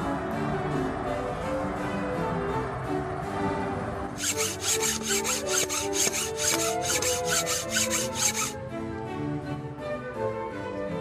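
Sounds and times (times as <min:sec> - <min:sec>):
orchestral string music: 0:00.0 - 0:11.0
rhythmic rasping scrape on wood: 0:04.2 - 0:08.6.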